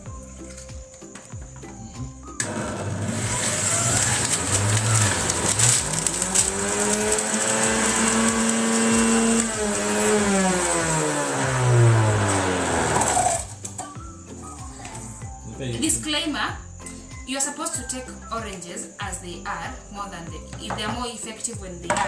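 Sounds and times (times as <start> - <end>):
electric juicer motor running: 2.4 - 13.8.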